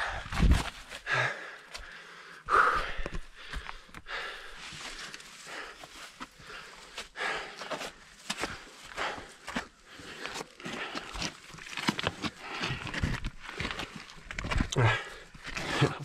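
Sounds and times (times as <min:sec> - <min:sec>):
climber breathing with effort: 0:00.0 - 0:16.0.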